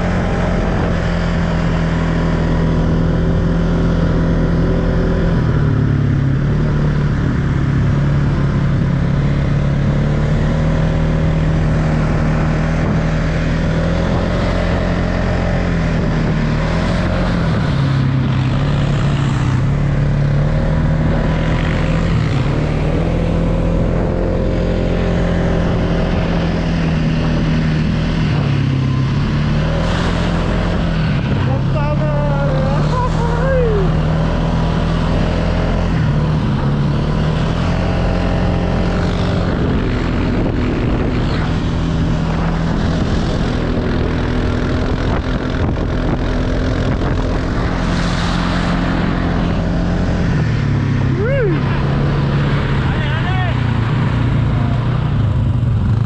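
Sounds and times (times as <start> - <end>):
quad bike engine running: 0.0 - 56.0.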